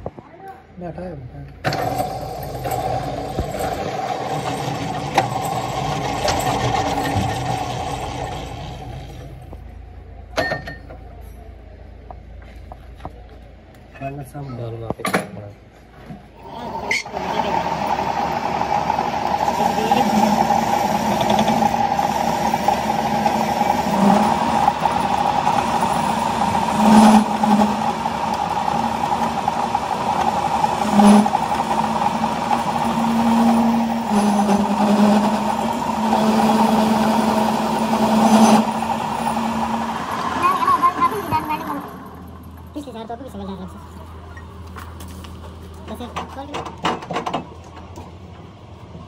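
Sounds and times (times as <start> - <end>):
metal lathe cutting steel: 1.7 - 9.3, 16.5 - 42.7.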